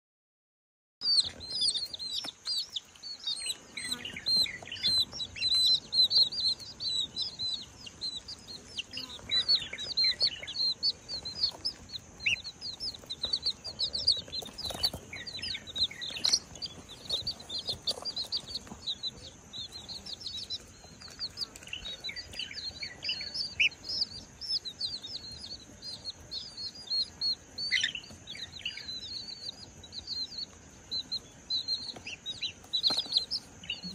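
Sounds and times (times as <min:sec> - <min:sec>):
baby chicks peeping: 0:01.0 - 0:33.9
wings fluttering: 0:10.9 - 0:19.3.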